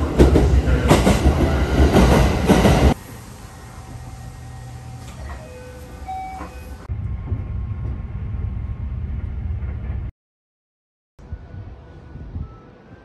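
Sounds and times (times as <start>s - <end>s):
train running rumble: 0.0s - 5.5s, 6.4s - 10.1s.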